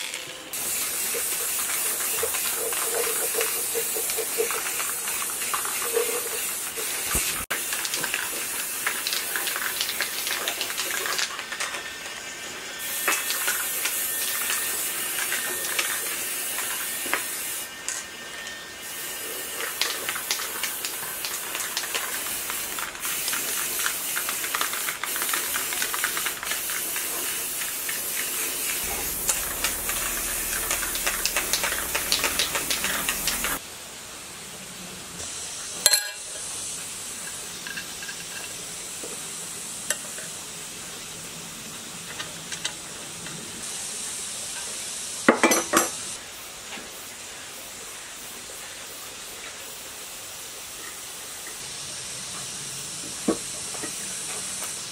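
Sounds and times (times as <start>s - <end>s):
spray can rattles and clicks: 0.0s - 18.0s, 18.9s - 33.6s, 37.2s - 39.2s
spray paint can hissing: 0.0s - 18.1s, 18.8s - 33.6s, 46.0s - 54.9s.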